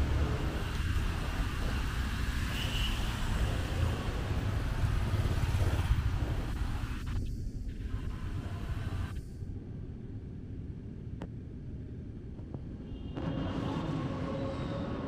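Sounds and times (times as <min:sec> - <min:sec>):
motorbikes and cars passing: 0:00.0 - 0:07.1
low traffic rumble: 0:00.0 - 0:15.0.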